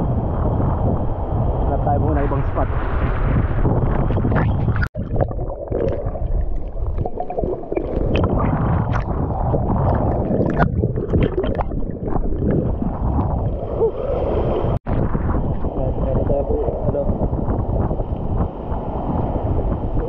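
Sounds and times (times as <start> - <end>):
underwater bubbling: 3.2 - 20.0
sea water sloshing and splashing: 3.8 - 15.7.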